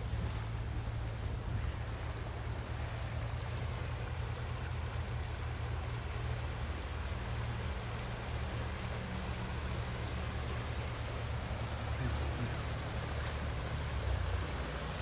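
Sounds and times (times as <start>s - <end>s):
low steady hum: 0.0s - 15.0s
river rushing: 0.0s - 15.0s.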